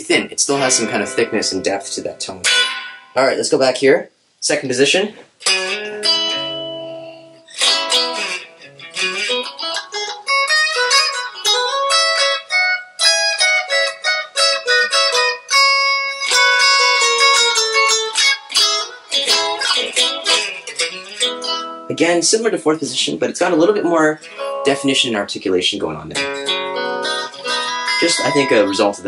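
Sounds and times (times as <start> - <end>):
electric guitar picked notes and chords: 0.6 - 3.2, 5.4 - 22.0, 24.2 - 25.0, 26.2 - 29.0.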